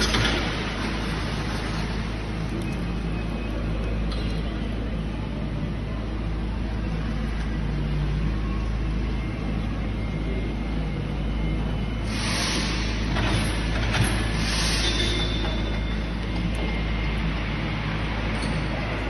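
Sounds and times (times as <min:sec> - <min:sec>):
electric trucks humming and rumbling: 0:00.0 - 0:19.0
faint high whine: 0:01.4 - 0:13.7.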